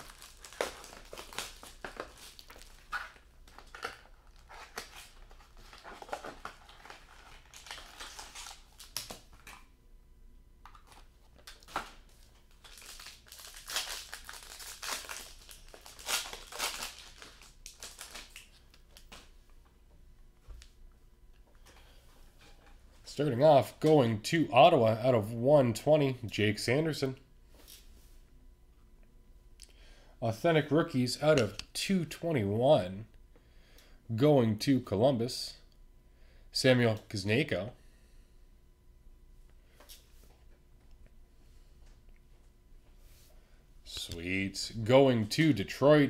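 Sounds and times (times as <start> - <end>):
plastic wrap crinkling and tearing: 0.0 - 9.6, 10.7 - 19.3.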